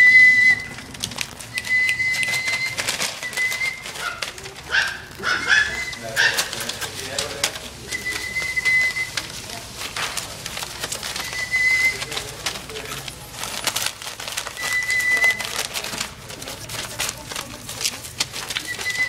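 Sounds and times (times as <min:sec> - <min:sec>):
high whistling tone: 0:00.0 - 0:04.0, 0:07.8 - 0:09.4, 0:11.1 - 0:12.3, 0:14.5 - 0:15.5, 0:18.6 - 0:19.0
paper rustling: 0:00.0 - 0:19.0
claws scratching: 0:00.4 - 0:19.0.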